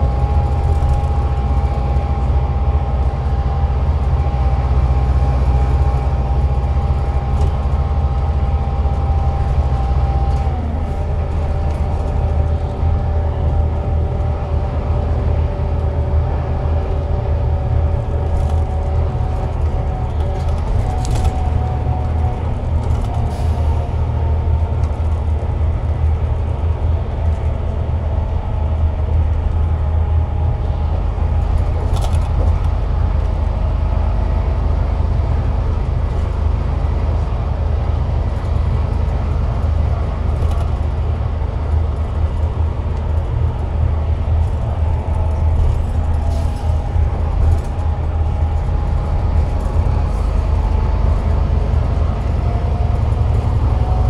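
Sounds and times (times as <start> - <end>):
bus diesel engine drone with gear whine: 0.0 - 54.0.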